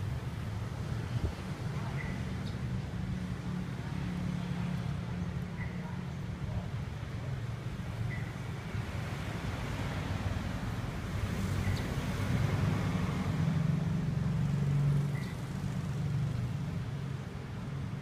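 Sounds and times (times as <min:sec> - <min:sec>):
road traffic rumble: 0:00.0 - 0:18.0.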